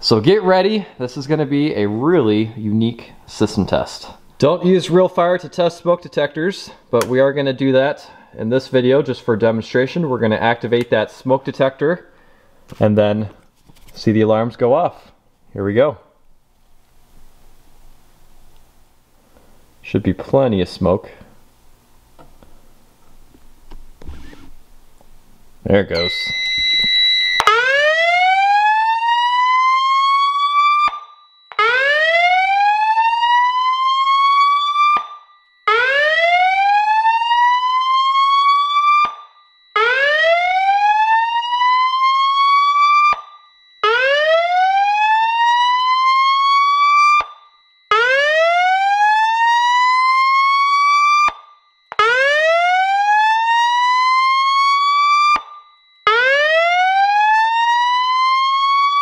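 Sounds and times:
rising whoop siren: 0:26.0 - 0:51.4, 0:52.0 - 0:59.0.

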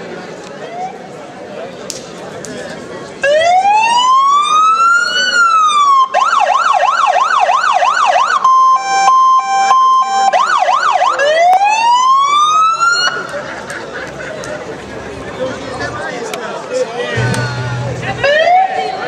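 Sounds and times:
electronic emergency siren: 0:03.2 - 0:13.2, 0:17.2 - 0:19.0.

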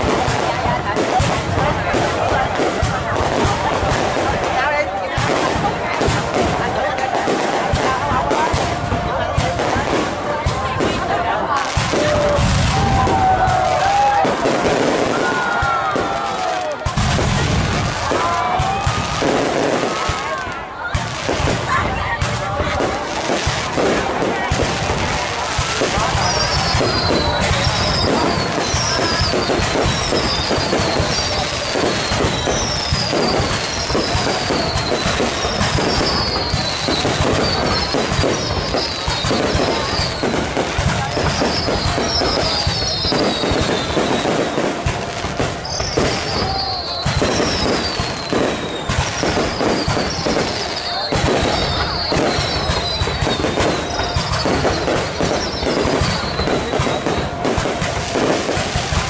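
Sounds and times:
fireworks bursting and crackling: 0:00.0 - 0:59.0
high firework whistles falling: 0:11.8 - 0:59.0.

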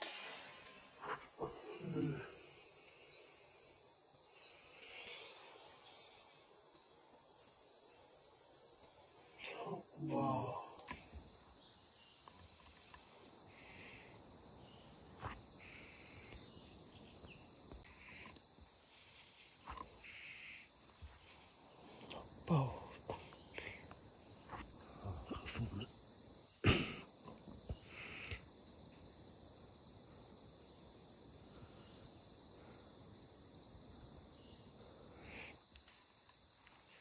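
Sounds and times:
insects droning: 0:00.0 - 0:37.0
low voice: 0:09.4 - 0:10.8, 0:22.5 - 0:23.0, 0:25.0 - 0:25.9.

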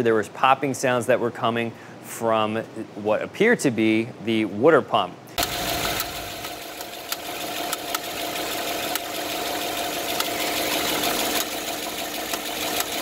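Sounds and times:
car engine idling: 0:05.4 - 0:13.0.

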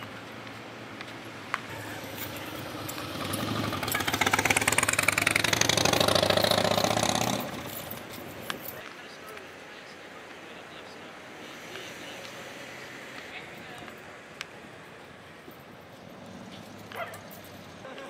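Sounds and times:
vehicle engine passing by: 0:01.7 - 0:08.8.

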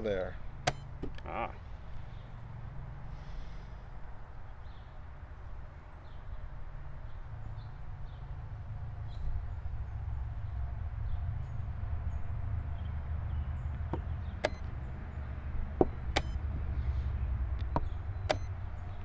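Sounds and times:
steady low rumble: 0:06.6 - 0:19.0
chess clock button clicks: 0:14.0 - 0:14.6, 0:17.7 - 0:18.5.

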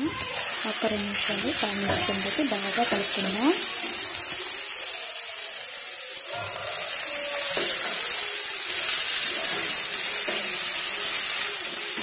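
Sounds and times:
spoon scraping a pan: 0:00.0 - 0:04.2, 0:06.4 - 0:11.7
food sizzling in oil: 0:00.0 - 0:12.0.

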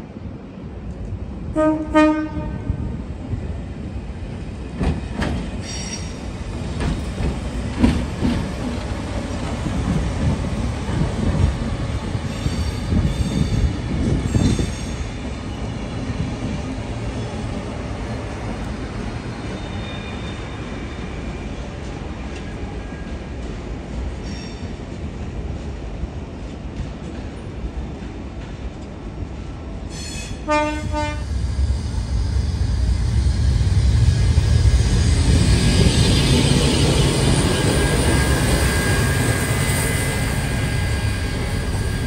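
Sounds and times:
train horn blast: 0:01.5 - 0:02.8, 0:30.4 - 0:31.3
train carriages rumbling: 0:02.3 - 0:21.1, 0:26.4 - 0:42.0
high wheel squeals: 0:34.2 - 0:42.0.

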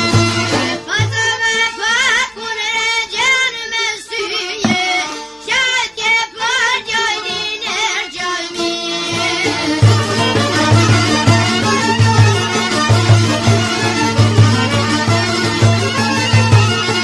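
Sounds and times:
light instrumental accompaniment: 0:04.6 - 0:05.4, 0:07.4 - 0:17.0.

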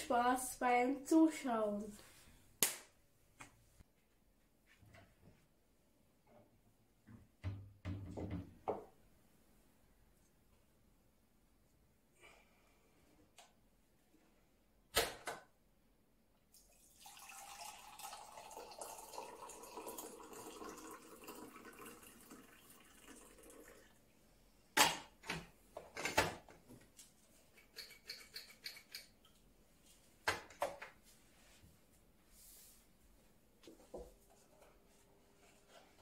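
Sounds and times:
water pouring: 0:16.5 - 0:24.0.

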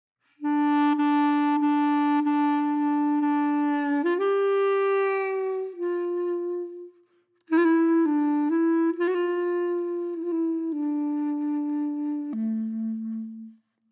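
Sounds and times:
woodwind playing long notes: 0:00.3 - 0:13.9.

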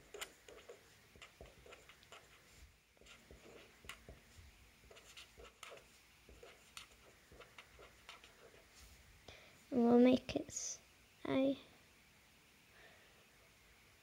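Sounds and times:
pen scratching on paper: 0:00.0 - 0:08.8.

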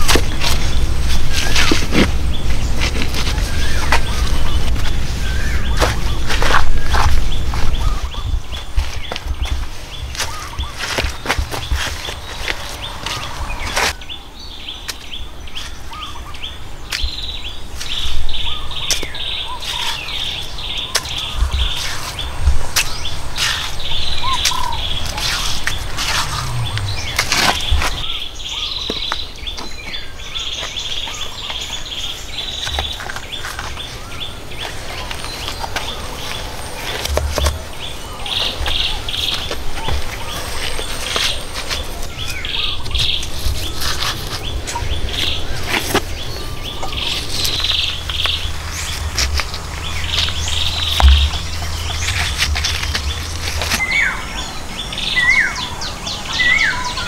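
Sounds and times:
mud scraping and squelching: 0:00.0 - 0:08.0, 0:19.0 - 0:28.1, 0:32.6 - 0:54.9
rock knocking on rock: 0:51.0 - 0:53.8.

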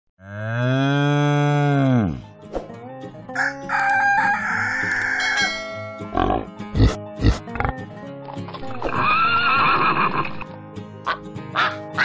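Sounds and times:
cow mooing: 0:00.2 - 0:02.3
higher rough animal call: 0:08.8 - 0:10.4.

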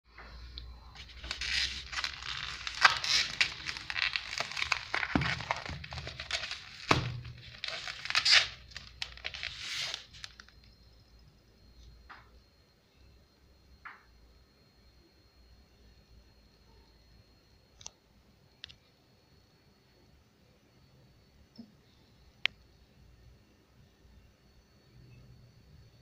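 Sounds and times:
plastic wrap crinkling: 0:01.0 - 0:10.6.

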